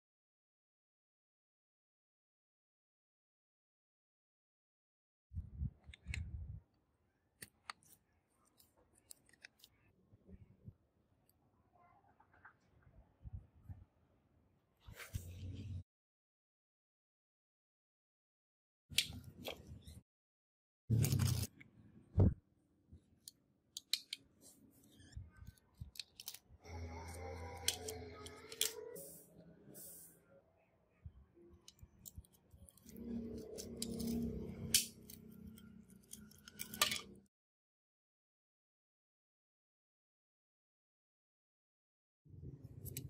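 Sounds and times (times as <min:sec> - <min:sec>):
screwdriver clicking and scraping screws: 0:31.7 - 0:37.2.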